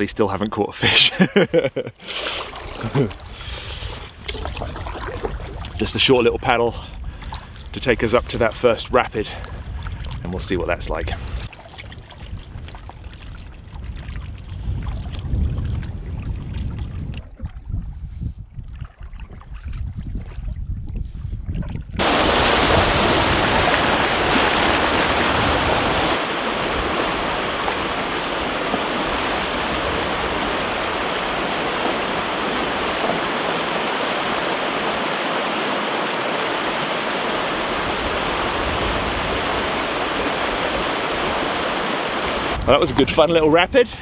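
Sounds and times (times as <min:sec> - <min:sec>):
white water rushing: 0:22.0 - 0:42.6.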